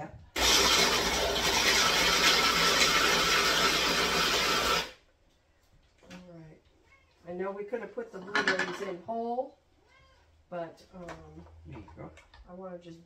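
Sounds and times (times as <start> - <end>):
electric food chopper running: 0.4 - 5.0.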